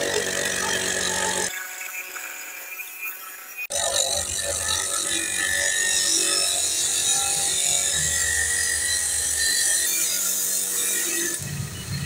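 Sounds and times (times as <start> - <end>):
cut-off wheel grinding through hose: 0.0 - 1.6.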